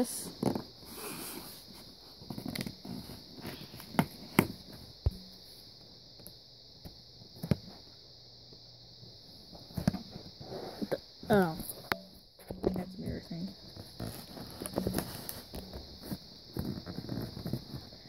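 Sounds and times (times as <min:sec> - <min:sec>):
faint steady hiss: 0:00.0 - 0:18.0
cardboard packaging rustling: 0:13.8 - 0:18.0.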